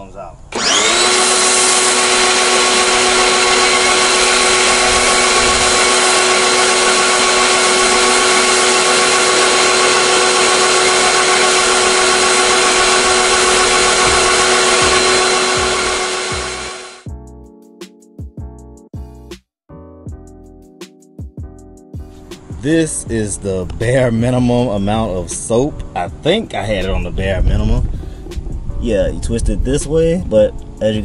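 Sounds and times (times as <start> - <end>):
pressure washer motor whine: 0.5 - 17.1.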